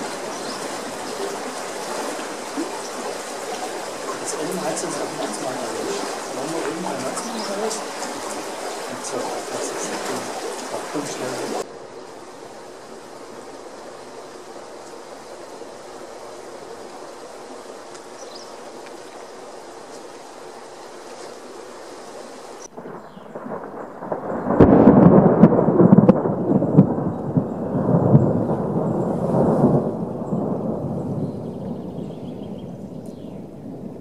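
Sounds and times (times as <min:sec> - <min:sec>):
rolling thunder: 0:00.0 - 0:11.7, 0:22.7 - 0:34.0
steady hiss: 0:00.0 - 0:24.1.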